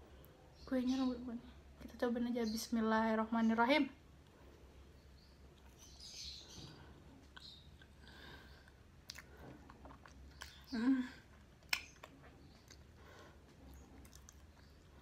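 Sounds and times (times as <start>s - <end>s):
person chewing with mouth smacks: 8.6s - 15.0s.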